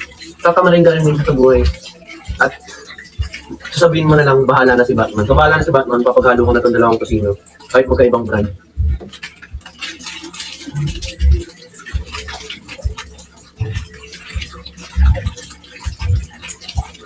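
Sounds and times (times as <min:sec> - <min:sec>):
low thumps: 0:07.9 - 0:09.7
packaging crinkling and rustling: 0:08.3 - 0:17.0.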